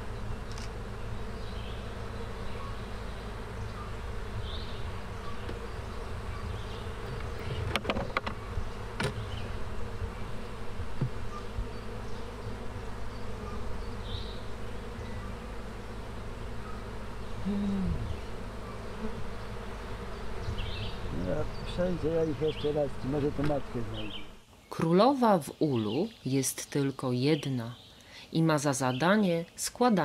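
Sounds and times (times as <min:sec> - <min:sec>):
bees buzzing: 0:00.0 - 0:30.0
sharp clicks: 0:00.5 - 0:00.7.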